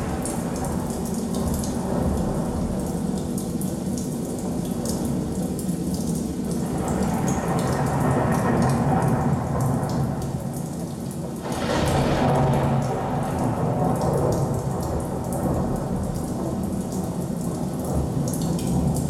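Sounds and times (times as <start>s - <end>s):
rain hiss: 0.0s - 19.0s
thunder rumbling: 11.4s - 16.8s.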